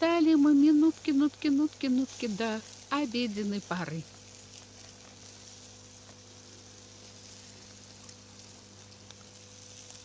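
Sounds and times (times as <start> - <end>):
high hiss: 0.0 - 10.0
soft ticks: 7.2 - 10.0.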